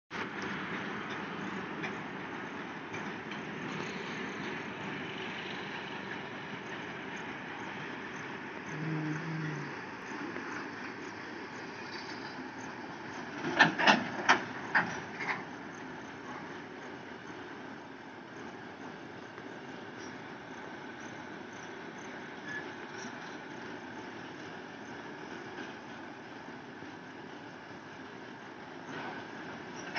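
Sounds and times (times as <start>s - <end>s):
train wheels rumbling on rails: 0.1s - 29.9s
wheels clacking over rail joint: 11.6s - 15.6s.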